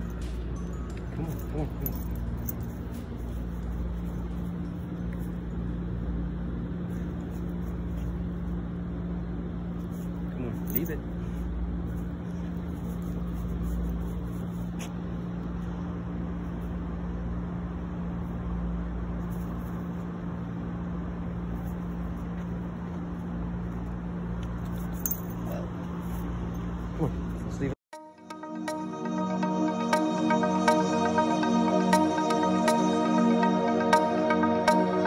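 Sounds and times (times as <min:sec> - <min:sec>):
outdoor background rumble: 0:00.0 - 0:27.8
steady low hum: 0:00.0 - 0:35.0.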